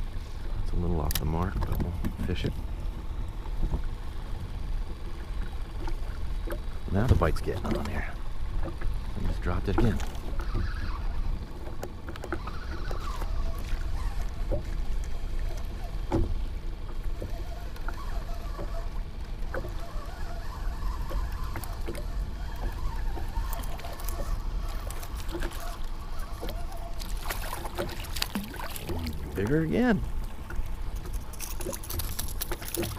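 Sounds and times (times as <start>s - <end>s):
waves lapping against kayak hull: 1.2s - 32.9s.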